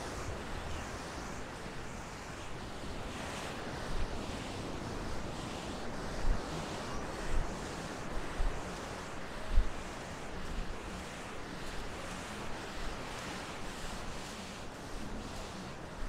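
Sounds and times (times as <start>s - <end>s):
surf washing on beach: 0.0s - 16.0s
wind buffeting microphone: 0.0s - 16.0s.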